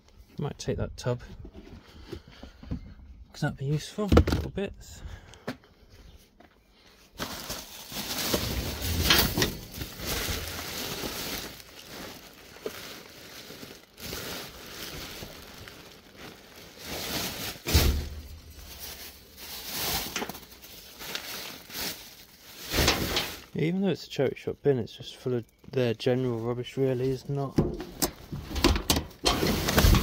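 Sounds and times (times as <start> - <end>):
plastic bin bags rustling: 7.1 - 23.8, 25.8 - 30.0.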